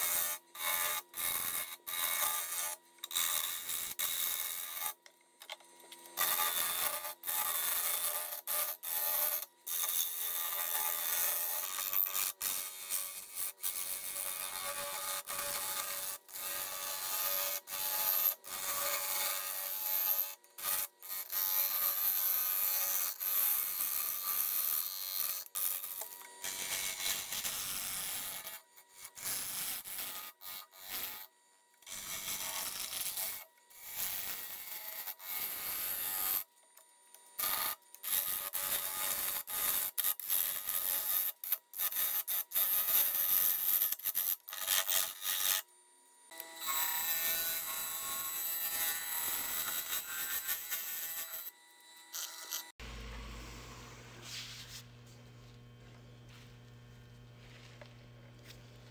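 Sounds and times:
tool scraping wood on lathe: 0.0s - 36.4s, 52.1s - 52.8s.

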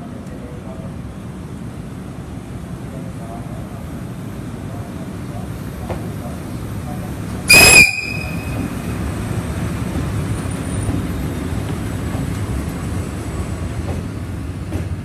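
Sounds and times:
freight train rumbling past: 0.0s - 15.0s
loud high-pitched whistle: 7.5s - 8.6s.

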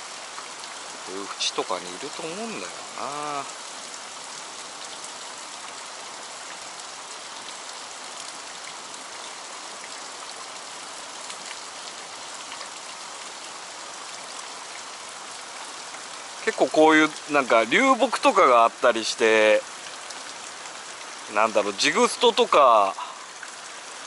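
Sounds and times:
water rushing from culvert: 0.0s - 24.0s
faint drips: 22.8s - 23.9s.

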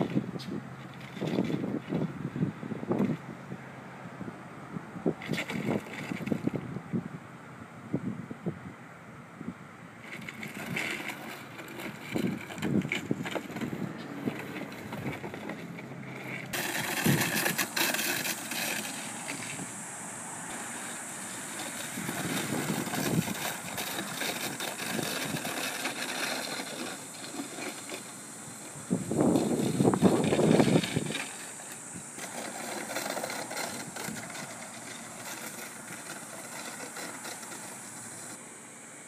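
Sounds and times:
plastic pipe scraping over gravel: 0.0s - 3.3s, 5.1s - 6.7s, 10.0s - 38.4s.

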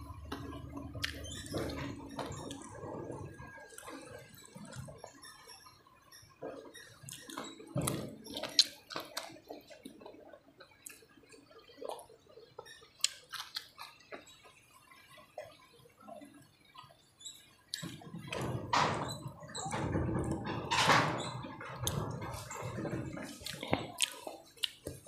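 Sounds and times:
wet chewing and lip smacks: 0.3s - 2.8s, 3.4s - 5.0s, 6.9s - 14.2s, 21.8s - 25.0s.

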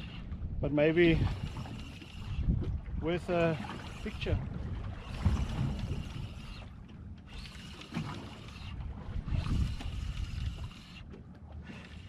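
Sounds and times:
wind buffeting microphone: 0.0s - 6.7s, 8.3s - 10.9s
water lapping against boat hull: 0.0s - 12.0s.

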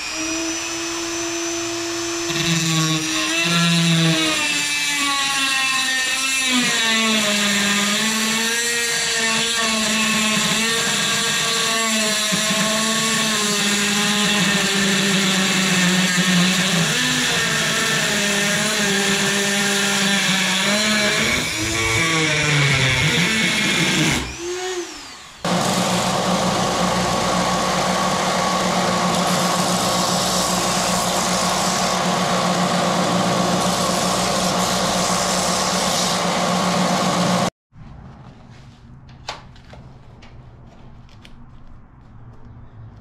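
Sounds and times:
metal grinding on sander: 0.8s - 37.5s
sander motor hum: 20.0s - 37.5s.

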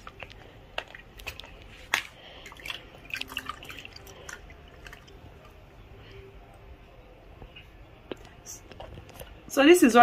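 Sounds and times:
water dripping in plastic bowl: 0.8s - 5.2s.

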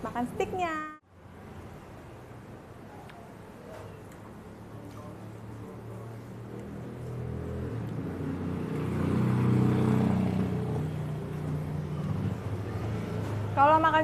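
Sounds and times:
vehicle engine passing: 5.1s - 14.0s.

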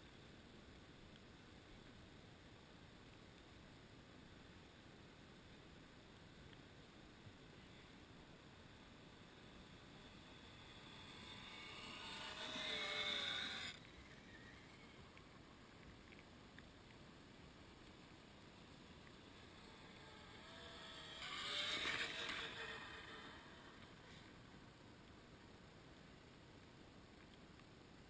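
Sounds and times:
steady hiss: 0.0s - 28.0s
toy car electric motor whining: 9.5s - 15.2s, 19.3s - 24.1s.

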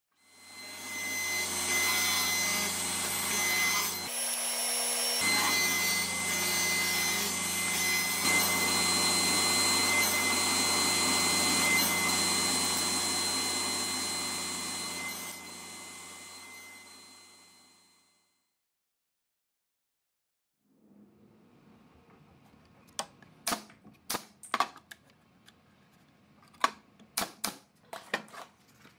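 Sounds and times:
table saw humming and whining: 0.1s - 18.1s.

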